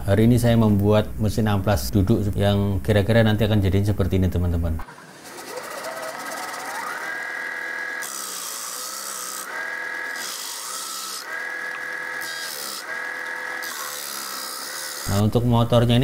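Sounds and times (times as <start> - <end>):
wood sanding rasp: 4.8 - 15.3
motor whine: 4.8 - 15.4.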